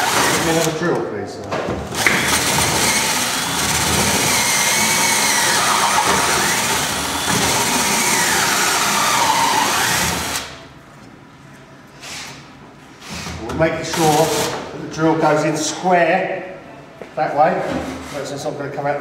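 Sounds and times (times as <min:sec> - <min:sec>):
cordless drill boring into wood: 0:00.0 - 0:00.7, 0:02.0 - 0:10.5.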